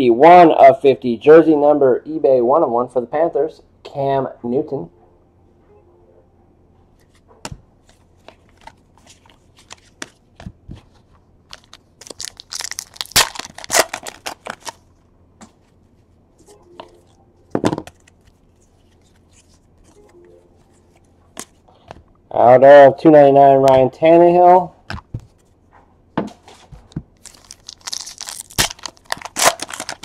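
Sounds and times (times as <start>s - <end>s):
wrapper tearing and crinkling: 11.5s - 14.8s, 27.2s - 30.0s.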